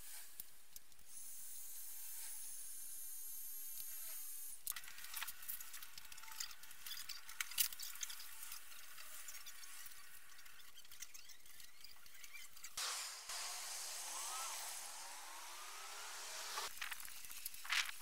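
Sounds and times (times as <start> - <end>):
light clicks and crackles: 4.6 - 12.8
heat gun blowing hiss: 12.8 - 16.7.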